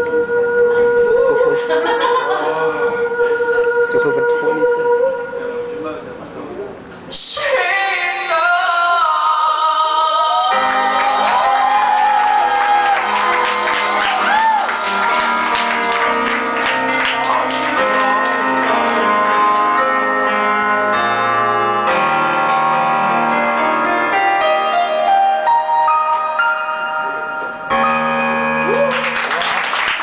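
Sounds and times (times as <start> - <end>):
person singing: 0.0 - 5.8, 7.1 - 21.3
keyboard chords: 7.7 - 29.5.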